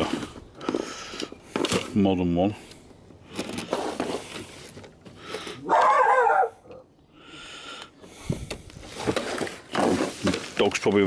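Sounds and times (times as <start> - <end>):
dog barking: 5.6 - 6.7.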